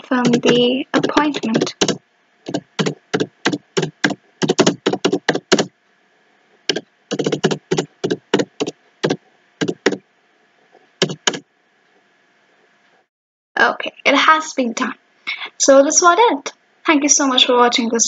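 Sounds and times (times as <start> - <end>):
keyboard keystroke clicks: 0.3 - 5.7, 6.7 - 10.0, 11.0 - 11.4.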